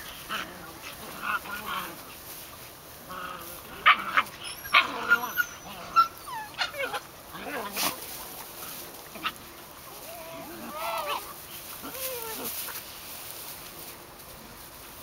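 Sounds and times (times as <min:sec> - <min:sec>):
puppies yelping: 0:03.1 - 0:08.0, 0:09.1 - 0:12.8.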